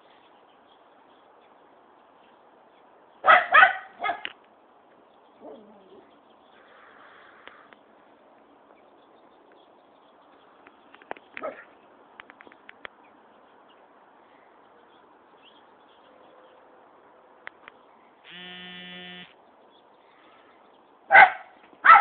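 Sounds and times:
small dog barking: 3.2 - 4.3, 11.4 - 11.7, 21.1 - 22.0.

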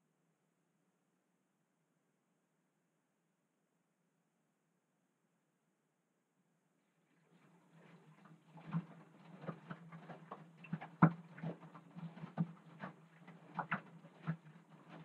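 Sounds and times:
wet laundry tumbling and splashing: 7.3 - 15.0
washing machine motor hum: 7.4 - 15.0.

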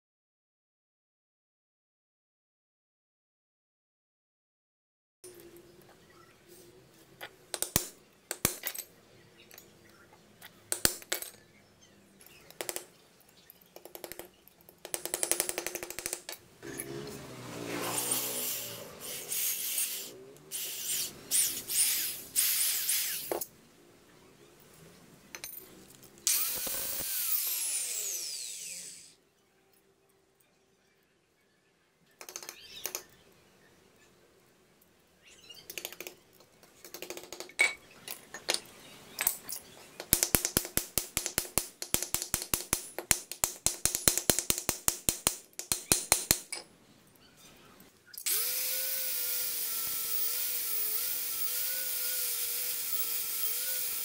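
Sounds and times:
metal clicks and knocks on wood: 10.4 - 11.4, 12.2 - 16.9, 35.7 - 46.7
cordless drill boring through metal: 17.8 - 23.4, 26.3 - 29.2, 48.2 - 54.0.

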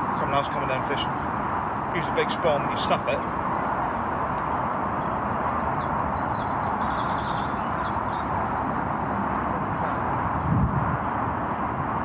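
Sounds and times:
outdoor background rush: 0.0 - 12.0
songbird chirping: 2.8 - 8.4.

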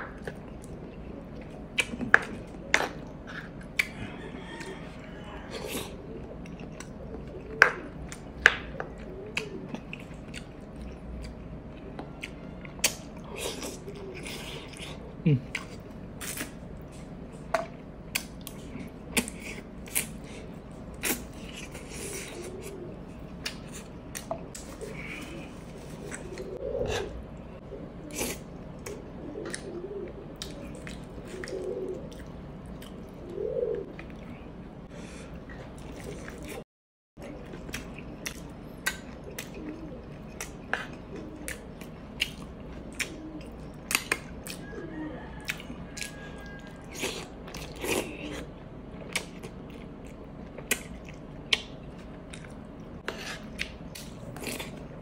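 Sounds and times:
chewing and mouth noises: 0.0 - 36.6, 37.2 - 55.0.

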